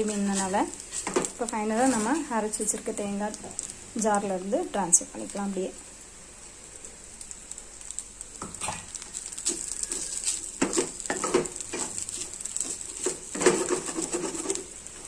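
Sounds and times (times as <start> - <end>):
food sizzling: 0.0 - 15.0
spatula scraping frying pan: 0.1 - 2.2, 8.6 - 14.8.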